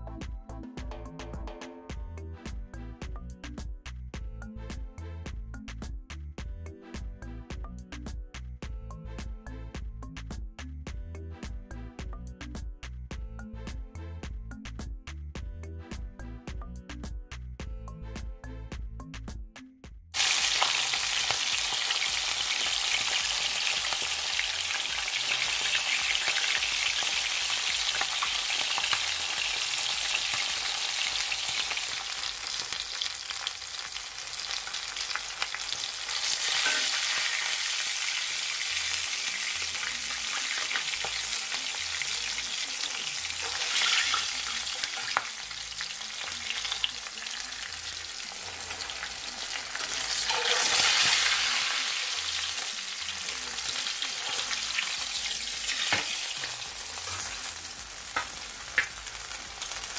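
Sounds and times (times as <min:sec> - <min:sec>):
fish sizzling in hot oil: 0:20.2 - 0:59.9.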